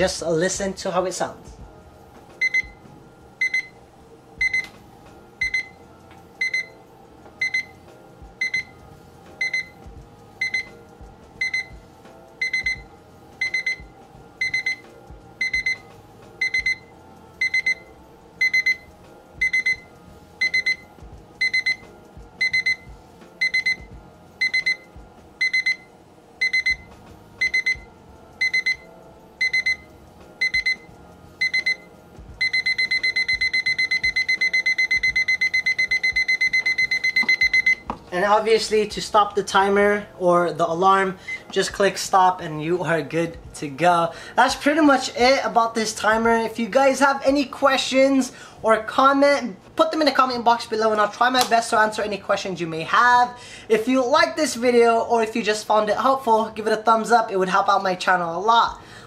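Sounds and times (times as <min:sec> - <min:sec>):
kitchen timer alarm beeping: 0:02.4 - 0:02.8, 0:03.4 - 0:03.8, 0:04.4 - 0:04.8, 0:05.4 - 0:05.8, 0:06.4 - 0:07.8, 0:08.4 - 0:09.8, 0:10.4 - 0:10.8, 0:11.4 - 0:11.8, 0:12.4 - 0:37.9.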